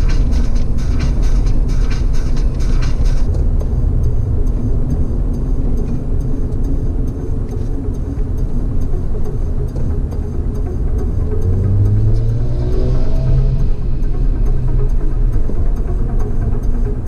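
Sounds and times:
car road and engine drone: 0.0 - 17.0
light ticking: 0.1 - 12.3.

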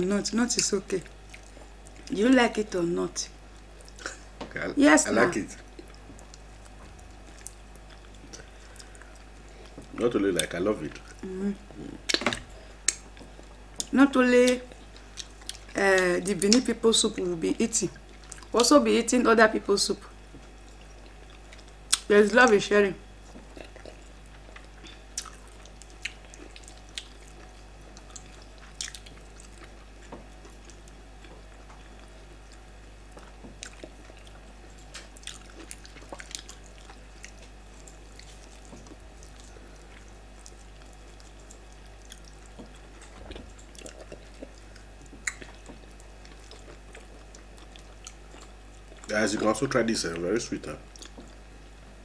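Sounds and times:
wet mouth smacks and chewing: 23.3 - 49.1, 50.9 - 51.4.

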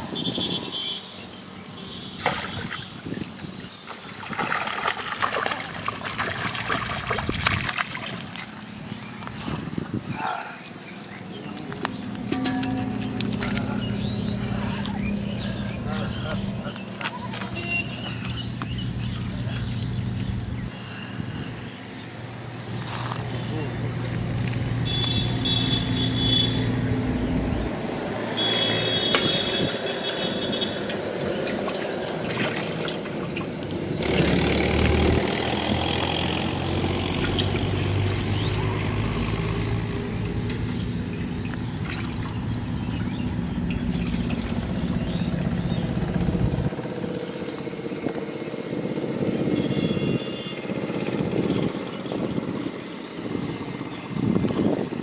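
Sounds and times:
motor engine running: 39.2 - 55.0.

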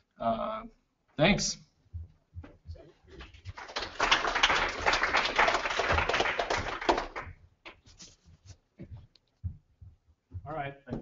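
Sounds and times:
audience applauding: 3.1 - 7.4.

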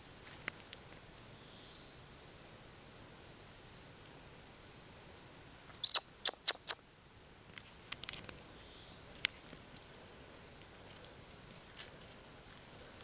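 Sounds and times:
puppy high-pitched yelps: 5.7 - 6.8.

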